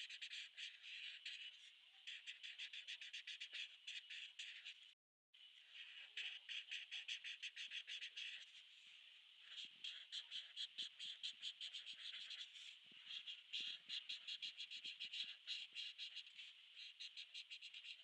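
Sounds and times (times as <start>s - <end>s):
marker scratching on paper: 9.5s - 13.8s.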